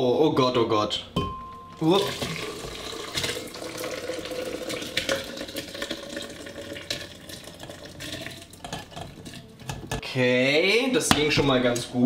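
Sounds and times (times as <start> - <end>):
liquid pouring into jug: 2.0 - 9.4.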